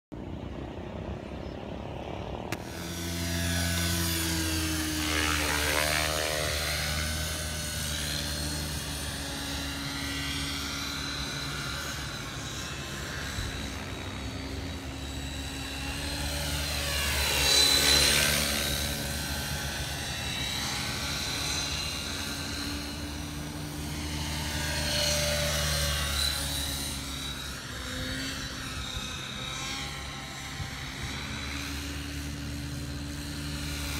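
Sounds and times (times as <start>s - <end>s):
helicopter rotor drone: 0.1s - 33.9s
electric motor whine: 2.3s - 33.9s.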